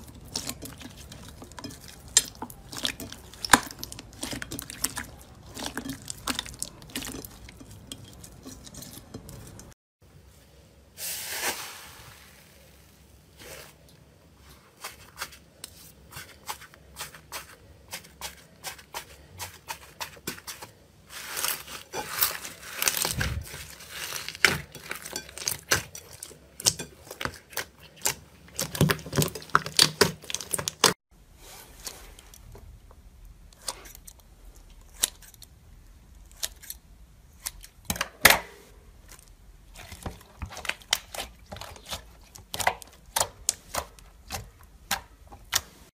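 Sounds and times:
slime popping and crackling: 26.6 - 31.0.

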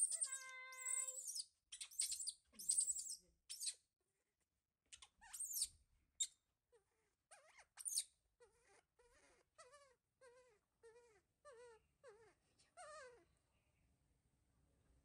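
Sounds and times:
baby monkey crying: 0.0 - 3.2, 7.3 - 13.2.

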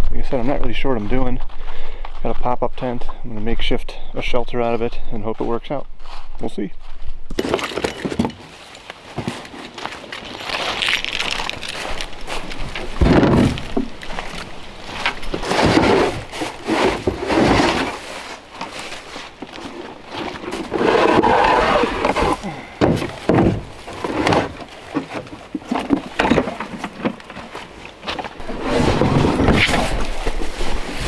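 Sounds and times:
logs clattering in crate: 7.3 - 30.7
footsteps in dry leaves: 8.4 - 16.8, 17.7 - 20.5
wood knocking and thumping: 12.4 - 17.9, 22.8 - 27.5.

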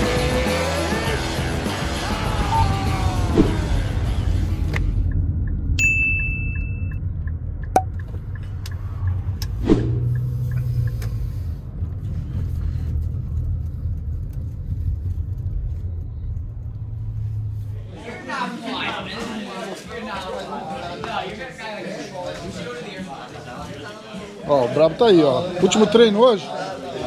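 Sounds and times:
car engine rumbling: 1.1 - 18.3.

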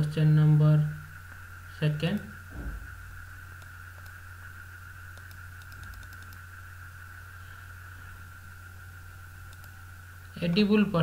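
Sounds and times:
high-pitched whine: 0.0 - 11.0
low electrical hum: 0.0 - 11.0
faint clicks: 3.6 - 4.2, 5.1 - 6.4, 9.5 - 9.8.

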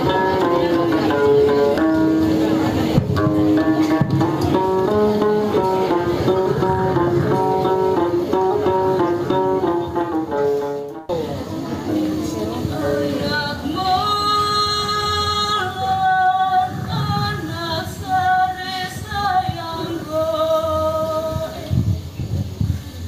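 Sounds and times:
woman singing unaccompanied: 0.0 - 10.1, 12.2 - 21.9
low thumps: 0.0 - 11.1.

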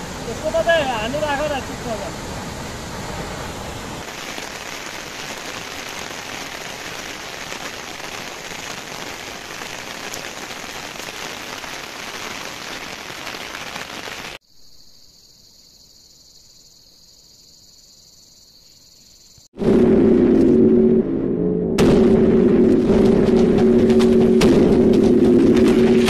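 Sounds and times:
steady rain falling: 0.0 - 14.4.

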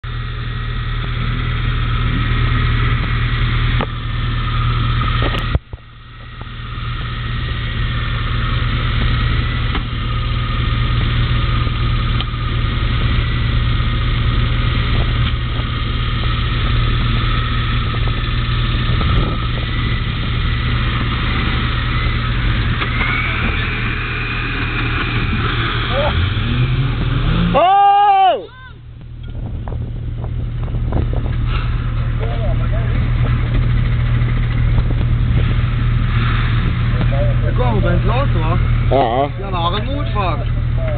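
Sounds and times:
off-road vehicle engine running: 0.0 - 40.9.

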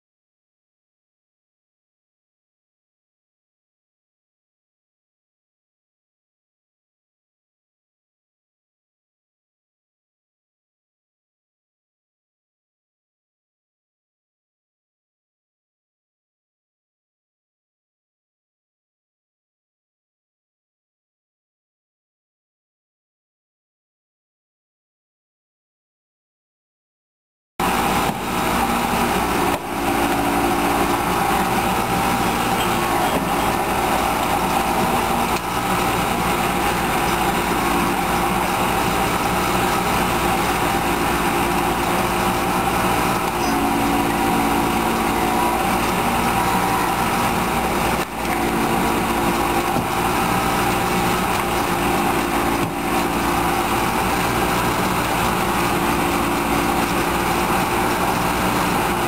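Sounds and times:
small gasoline engine running: 27.6 - 59.0.

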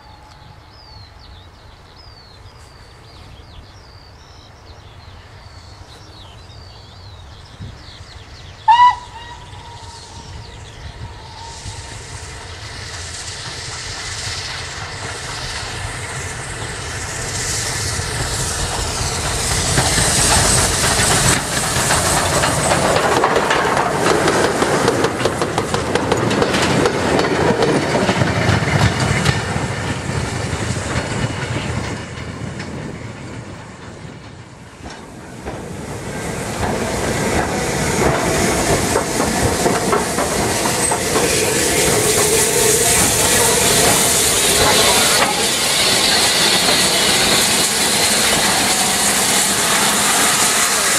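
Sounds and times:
freight train passing: 0.0 - 50.9
steam locomotive hissing: 6.8 - 50.9
wheels clattering over rail joints: 17.8 - 50.9.

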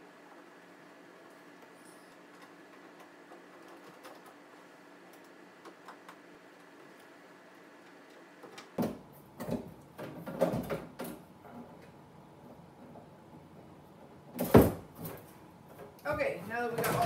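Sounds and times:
cover panel knocks and clatter: 8.8 - 11.2.

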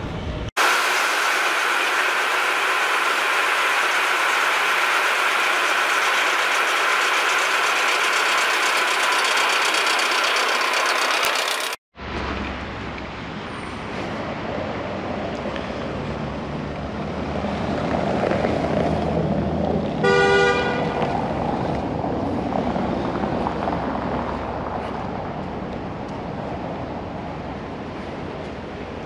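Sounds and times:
street traffic: 0.0 - 29.0
vehicle horn toot: 20.0 - 21.0.

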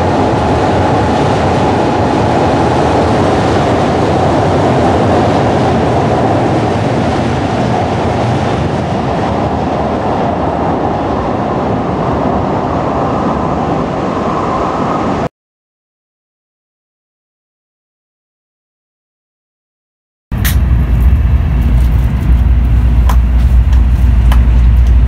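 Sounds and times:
train running rumble: 0.0 - 15.2, 20.3 - 25.0.

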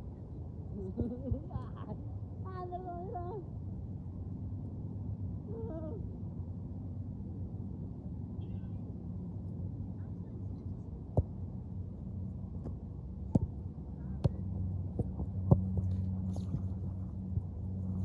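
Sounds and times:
steady low hum: 0.0 - 18.0
foot tapping a football: 12.6 - 16.6.

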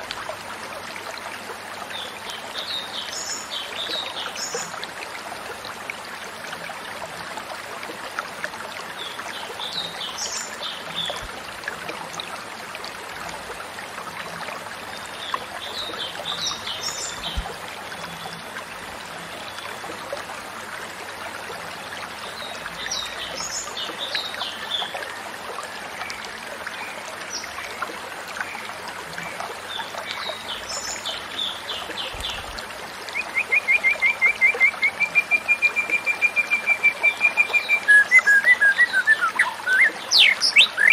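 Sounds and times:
trickle of running water: 0.0 - 40.9
songbird phrases: 33.1 - 40.9.

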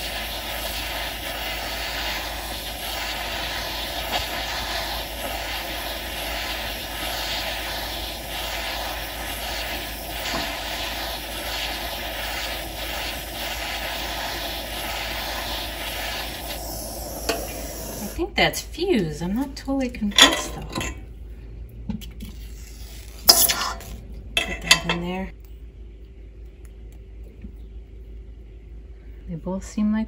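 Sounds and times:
torch flame hissing: 0.0 - 18.3, 22.3 - 24.0.

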